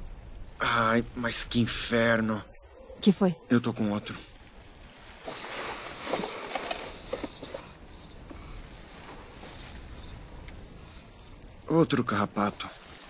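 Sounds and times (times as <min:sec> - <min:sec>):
insects chirring: 0:00.0 - 0:13.0
rustling: 0:04.1 - 0:11.4, 0:12.5 - 0:13.0.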